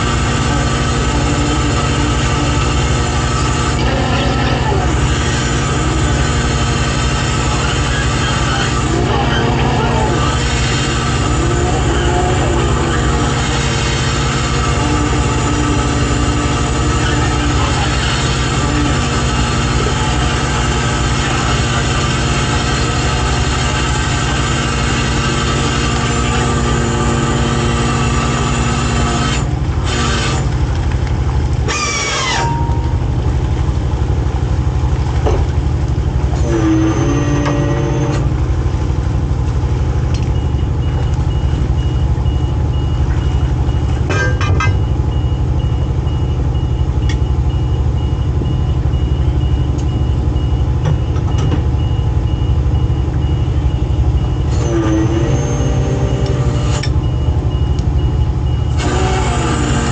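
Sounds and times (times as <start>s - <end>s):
rising and falling whines: 0.0s - 22.6s, 31.6s - 34.3s
diesel engine rumbling: 0.0s - 59.9s
high beep: 32.3s - 33.2s.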